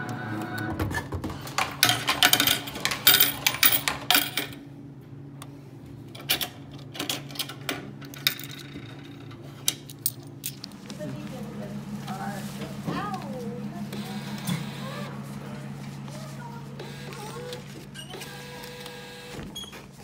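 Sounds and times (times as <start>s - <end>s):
low machine hum: 0.0s - 20.0s
coin clicks: 1.6s - 4.6s, 6.2s - 10.7s
coins rattling in coin return: 1.6s - 4.6s, 6.2s - 10.7s.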